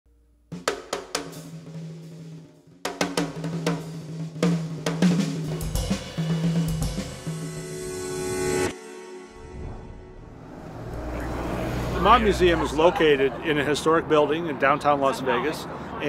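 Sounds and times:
drum kit music: 0.4s - 10.3s.

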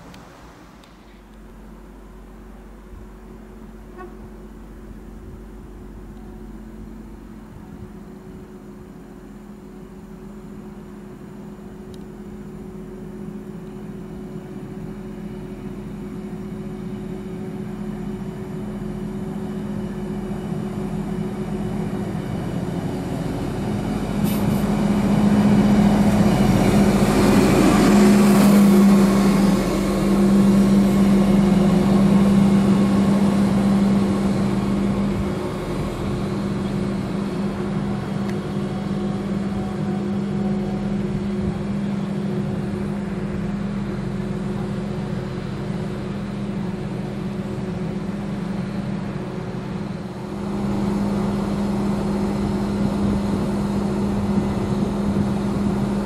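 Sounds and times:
diesel railcar engine drone: 0.0s - 56.0s
train rolling noise: 0.0s - 56.0s.

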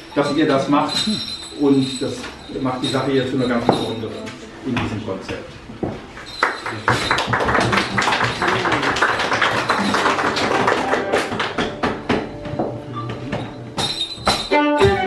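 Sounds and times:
audience applause: 6.4s - 11.7s.

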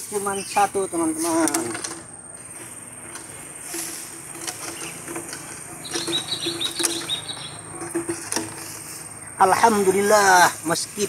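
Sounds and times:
high insect buzz: 0.0s - 11.0s
chirps: 5.7s - 7.7s.

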